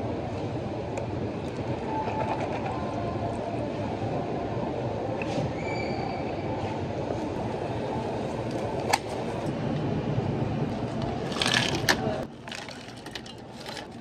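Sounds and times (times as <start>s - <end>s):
ice cubes clattering into cups: 11.3s - 14.0s.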